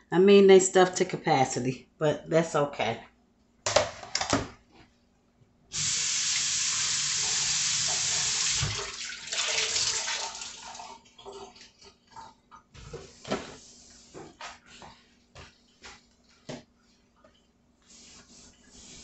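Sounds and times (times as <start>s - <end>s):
water running into sink: 5.8s - 11.9s.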